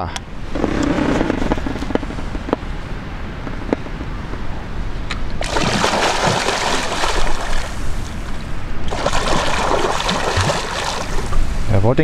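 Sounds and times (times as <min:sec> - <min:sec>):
water splashing and churning: 0:05.3 - 0:11.7.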